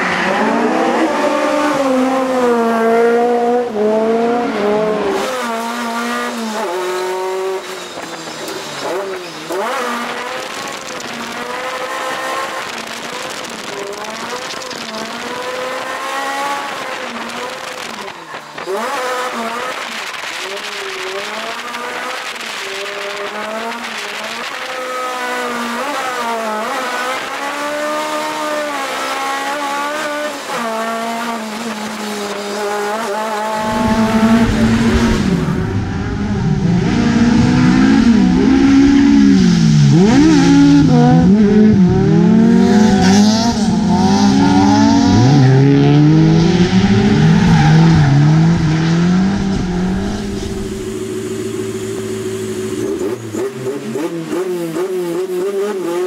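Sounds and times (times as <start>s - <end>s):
car engine revving: 0.0s - 56.0s.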